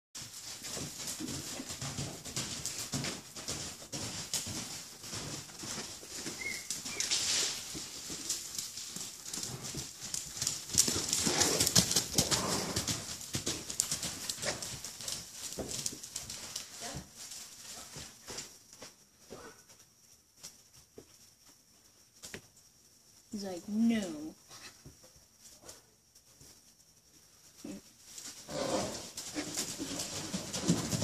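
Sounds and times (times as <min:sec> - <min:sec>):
horse hoofbeats on sand: 0:00.2 - 0:19.6, 0:28.2 - 0:31.0.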